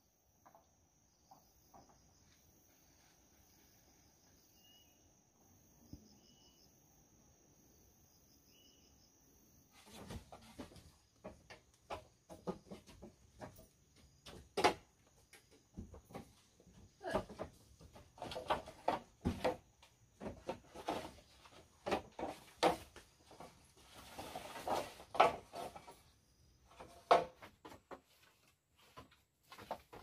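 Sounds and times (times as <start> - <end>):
bamboo poles knocking: 10.4 - 21.0
rustling scrape: 20.3 - 27.4.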